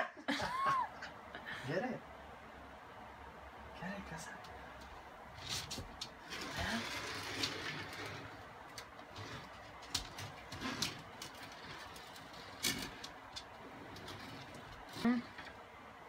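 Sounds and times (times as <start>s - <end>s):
faint rustling: 4.4s - 15.6s.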